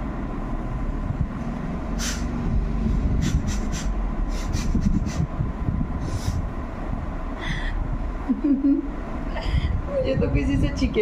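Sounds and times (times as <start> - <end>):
steady low rumble: 0.0 - 11.0
woman sniffing: 2.0 - 2.3, 3.2 - 5.3, 6.0 - 6.4.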